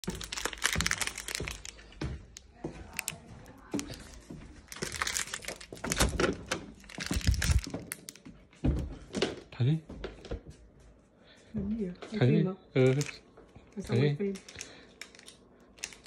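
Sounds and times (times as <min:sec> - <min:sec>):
plastic wrapper crinkling: 0:00.0 - 0:08.2, 0:12.8 - 0:13.2, 0:14.0 - 0:16.0.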